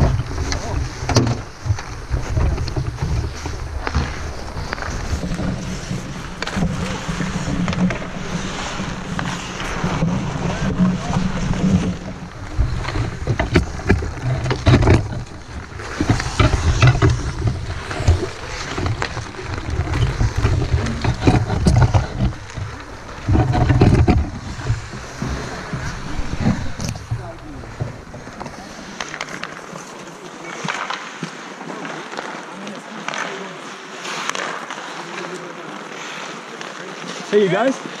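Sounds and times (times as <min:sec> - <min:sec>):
wind rumble on microphone: 0:00.0 - 0:28.8
skates on ice: 0:00.0 - 0:38.0.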